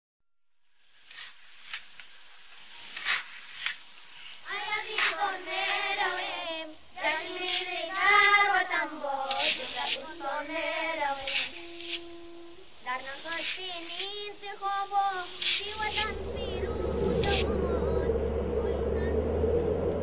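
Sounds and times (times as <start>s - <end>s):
hiss: 0.6s - 19.4s
person singing slow melody: 4.4s - 20.0s.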